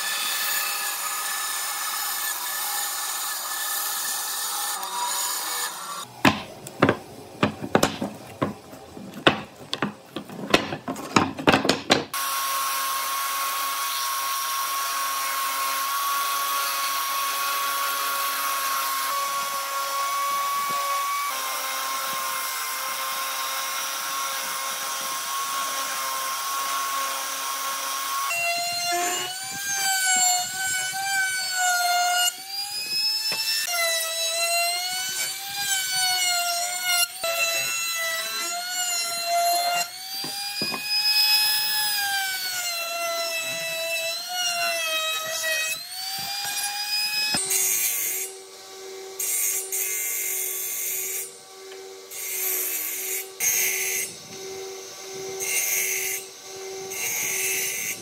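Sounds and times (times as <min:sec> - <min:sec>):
trim router cutting wood: 0:00.0 - 0:06.1, 0:11.9 - 0:58.0
sharp knocks on wood: 0:06.2 - 0:08.6, 0:09.2 - 0:12.2.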